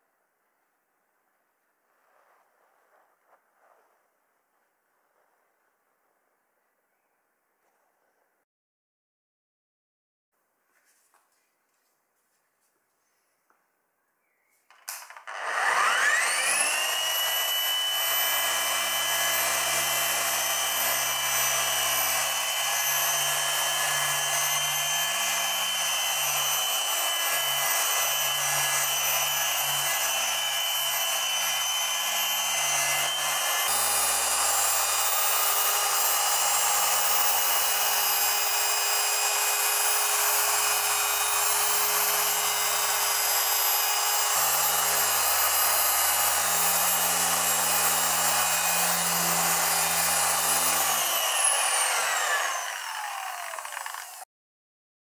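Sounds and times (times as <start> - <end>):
polisher motor whine: 14.9 - 54.3.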